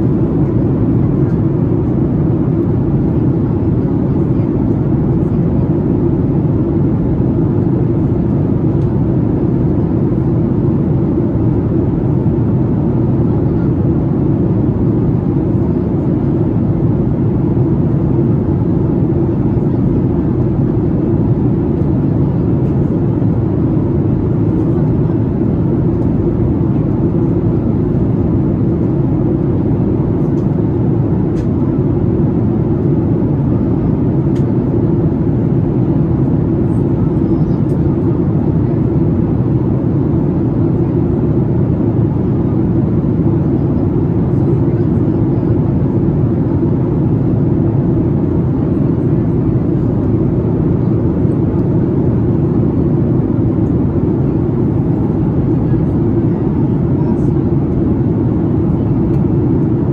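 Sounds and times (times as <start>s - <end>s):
airplane cabin drone: 0.0s - 59.9s.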